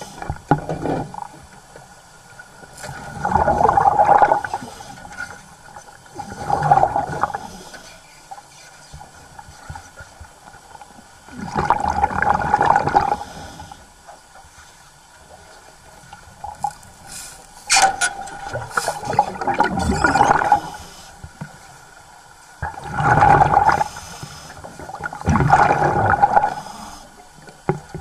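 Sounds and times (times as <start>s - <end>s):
underwater regulator bubbling: 17.7s - 20.9s.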